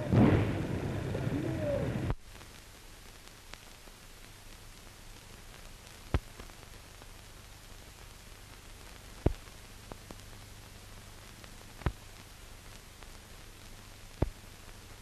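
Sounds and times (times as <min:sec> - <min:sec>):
film soundtrack hiss: 0:00.0 - 0:15.0
sharp pops: 0:06.0 - 0:06.6, 0:09.2 - 0:10.2, 0:11.7 - 0:12.3, 0:14.1 - 0:14.5.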